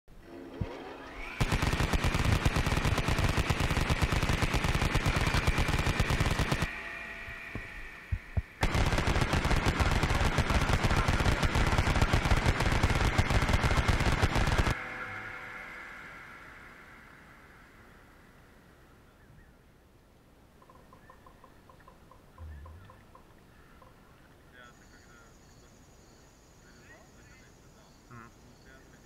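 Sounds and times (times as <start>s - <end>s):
steady high whine: 0.1s - 20.4s
airsoft gun full auto bursts: 1.1s - 6.8s, 8.6s - 14.8s.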